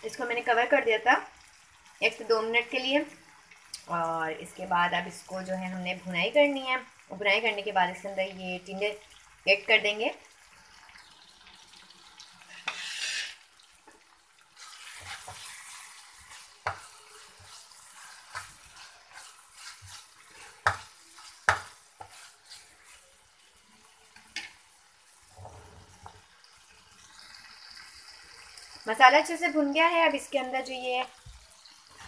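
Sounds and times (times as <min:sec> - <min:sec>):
food sizzling in a frying pan: 0:00.0 - 0:32.0
utensil scraping a metal pan: 0:12.5 - 0:13.4, 0:14.6 - 0:23.1.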